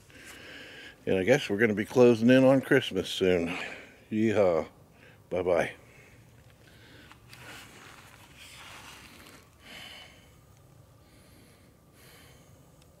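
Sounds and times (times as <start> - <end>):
man breathing through nose: 0.0 - 1.0, 5.9 - 7.7, 8.8 - 12.8.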